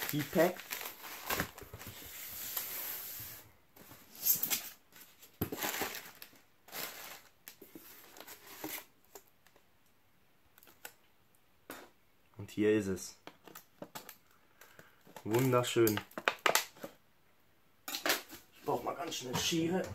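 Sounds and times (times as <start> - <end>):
packing paper rustling: 0.0 - 3.2, 3.8 - 8.9.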